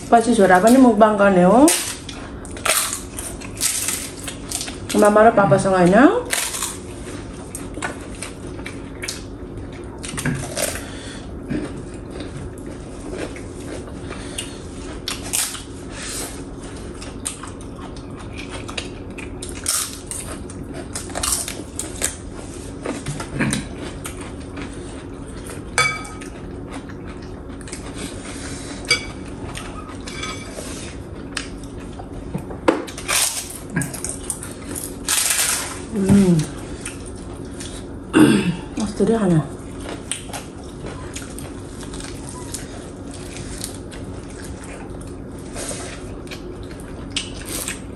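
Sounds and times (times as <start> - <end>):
utensils clinking on dishes: 25.8 - 26.3, 28.8 - 30.6.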